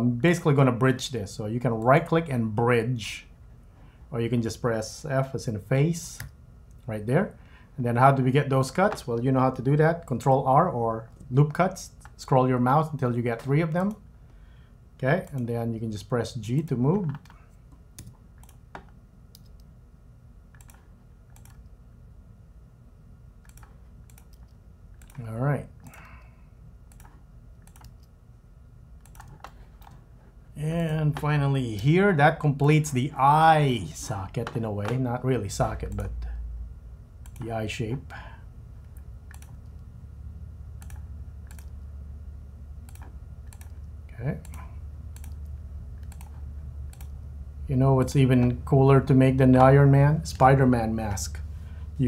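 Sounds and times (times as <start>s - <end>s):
low hum: 0.0s - 52.0s
computer mouse clicks: 17.1s - 19.7s, 20.5s - 21.7s, 23.4s - 25.2s, 26.9s - 28.2s, 29.0s - 30.0s, 37.2s - 37.5s, 38.8s - 39.9s, 40.8s - 41.8s, 42.8s - 47.2s
mouse and keyboard clicks: 23.4s - 25.2s, 26.9s - 28.1s, 29.0s - 30.0s.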